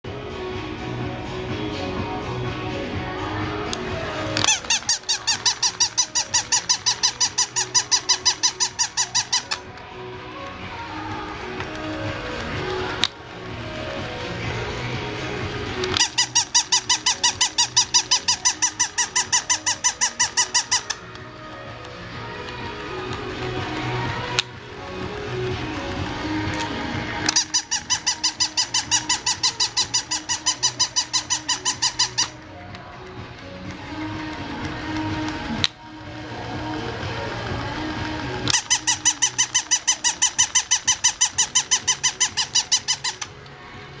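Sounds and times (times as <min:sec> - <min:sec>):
toy dog squeaky electronic yips: 0:04.3 - 0:09.8, 0:15.8 - 0:21.2, 0:26.6 - 0:32.4, 0:38.4 - 0:43.4.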